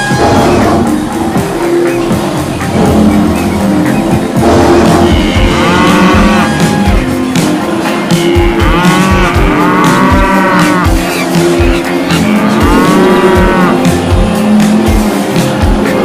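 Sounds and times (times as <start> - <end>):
background music with a beat: 0.0 - 16.0
cartoon cow mooing: 4.8 - 7.2, 7.8 - 14.0.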